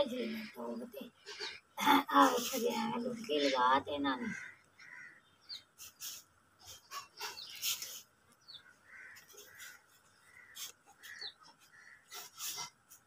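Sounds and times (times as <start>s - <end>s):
bird calling: 3.3s - 12.7s.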